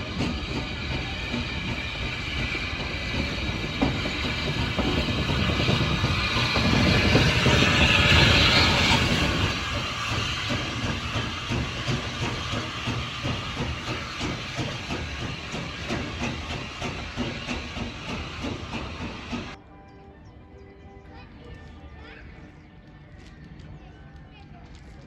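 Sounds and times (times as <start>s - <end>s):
steam hissing: 0.0s - 19.6s
steam locomotive chuffing: 0.0s - 19.6s.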